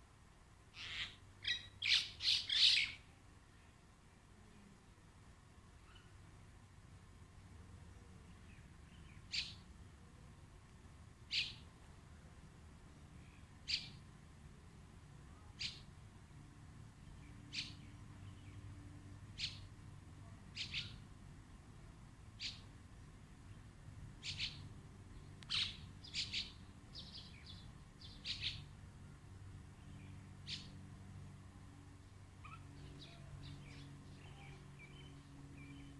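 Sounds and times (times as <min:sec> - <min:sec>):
myna bird calls: 0:00.7 - 0:03.0, 0:20.6 - 0:21.0, 0:24.2 - 0:24.6, 0:25.5 - 0:28.6, 0:32.4 - 0:35.9.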